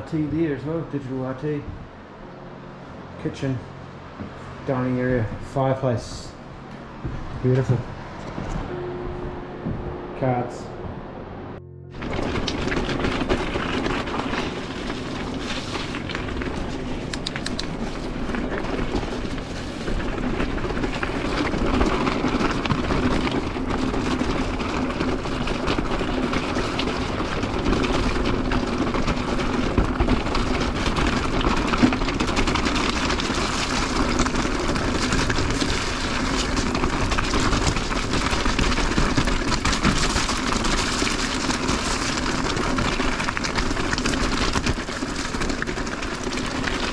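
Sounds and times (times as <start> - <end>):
bike frame rattle: 11.9 - 46.9
bike tyre rumble on rocky trail: 11.9 - 46.9.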